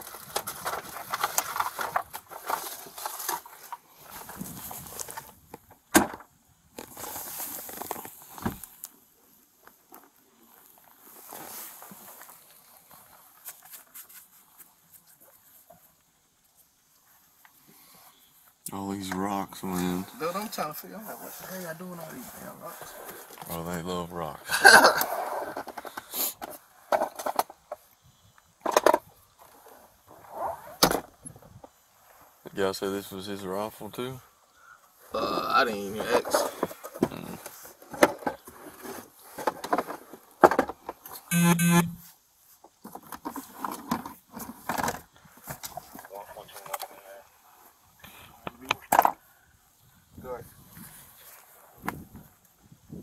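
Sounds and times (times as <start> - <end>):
rustling against body-worn camera: 0.0 - 5.9, 6.8 - 8.9
rustling and scraping: 0.0 - 9.0, 9.6 - 16.0, 19.6 - 23.8, 24.9 - 27.9, 28.6 - 32.4, 35.9 - 47.8.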